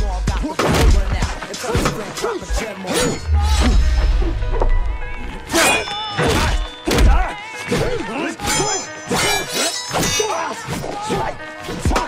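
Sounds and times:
sword blades clashing: 1.7s - 3.8s, 5.5s - 12.0s.

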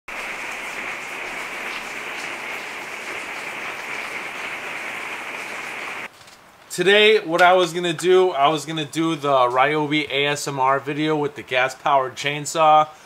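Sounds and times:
heavy rain on wooden deck: 0.1s - 6.1s.

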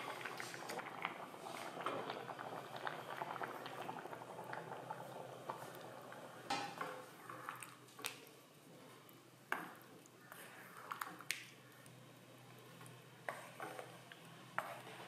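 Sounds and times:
spatula stirring thick curry: 12.9s - 15.0s.

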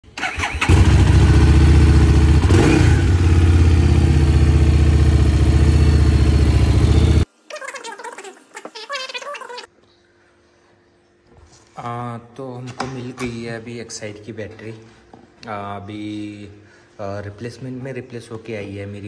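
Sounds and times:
motorcycle engine starting and idling: 0.1s - 7.2s.

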